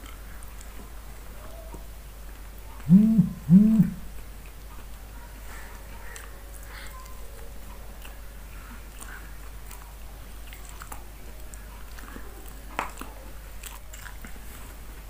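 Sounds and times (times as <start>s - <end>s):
steady low hum: 0.0s - 10.6s
person chewing food: 7.7s - 14.8s.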